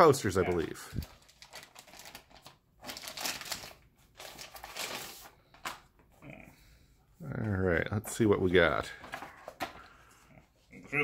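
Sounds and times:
plastic shrink wrap crinkling: 0.0 - 5.9.

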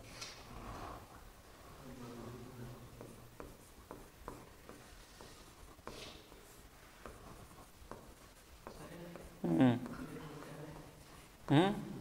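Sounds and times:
pen scratching on board: 2.8 - 11.5.

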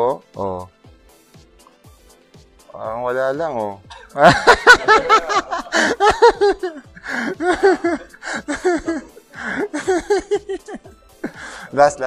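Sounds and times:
person laughing hard: 4.0 - 11.4
breathy gasps: 7.0 - 7.4, 8.1 - 8.5, 9.3 - 9.7, 11.2 - 11.7.

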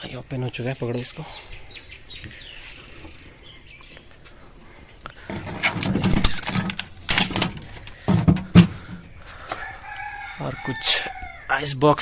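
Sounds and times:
faint bird chirps: 0.0 - 5.3
refrigerator rustling and clattering: 5.2 - 9.1.

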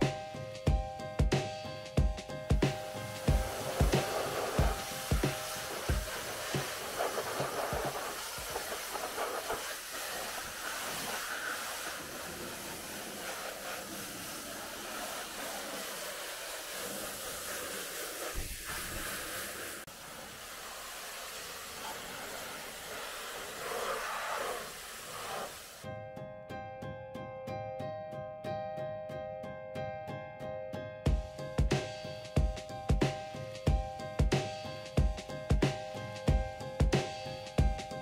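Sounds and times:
pressure washer jet hissing: 2.3 - 25.8.

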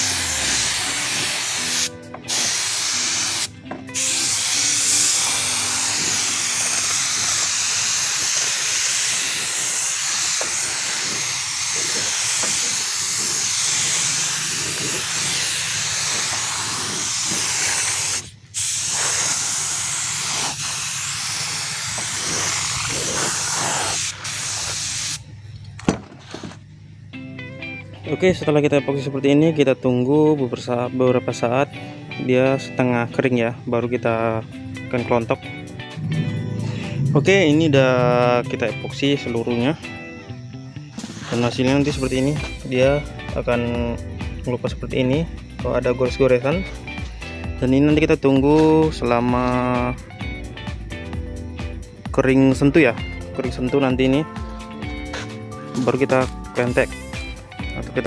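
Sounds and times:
air spray gun hissing: 0.0 - 25.2, 40.9 - 42.3, 56.2 - 57.4.

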